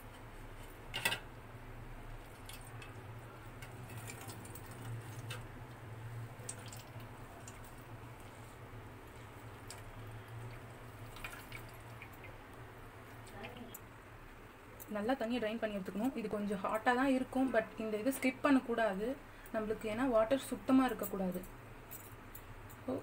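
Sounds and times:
water dripping: 0:02.2 - 0:03.0, 0:03.6 - 0:08.3, 0:09.3 - 0:13.9.

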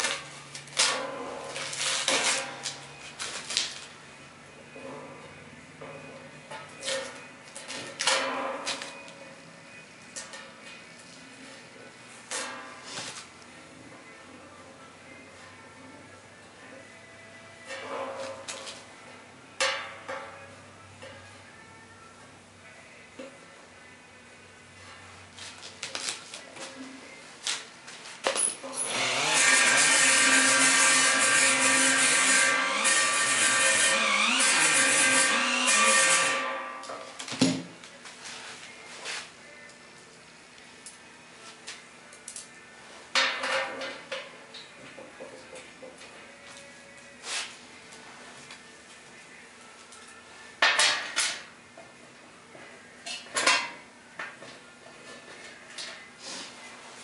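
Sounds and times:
pneumatic rotary tool running: 0:28.8 - 0:36.5.

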